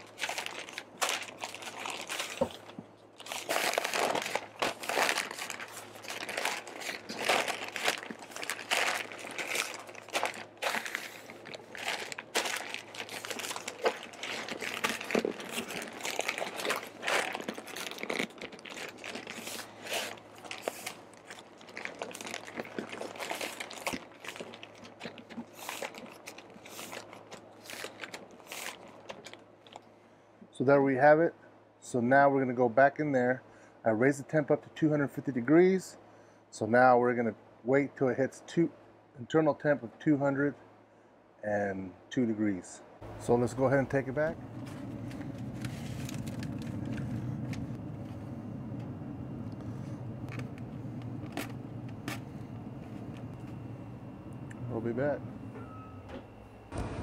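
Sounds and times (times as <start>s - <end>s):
paper crinkling and rustling: 0.0s - 29.8s, 43.1s - 53.7s
faint low hum: 0.0s - 57.0s.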